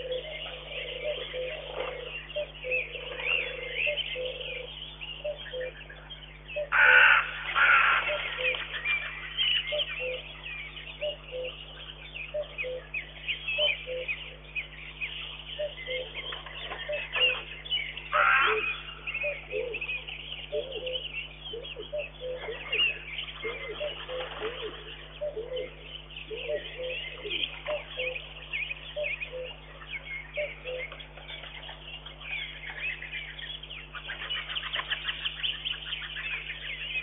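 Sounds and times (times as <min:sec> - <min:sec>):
birds singing dawn chorus: 0:00.0 - 0:37.0
harsh crow-like caw: 0:06.7 - 0:08.4, 0:18.1 - 0:18.8.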